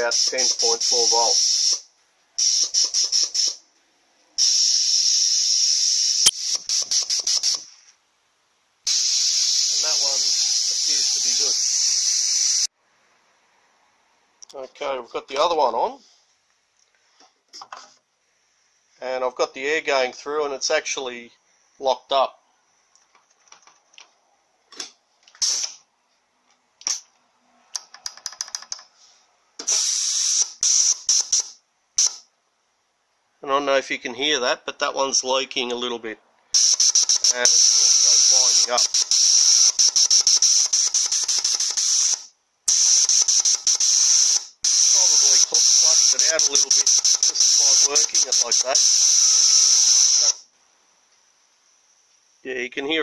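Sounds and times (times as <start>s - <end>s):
compressed air hissing: 0.0s - 3.6s, 4.4s - 7.8s, 8.9s - 12.7s, 25.4s - 25.8s, 29.6s - 32.2s, 36.6s - 50.5s.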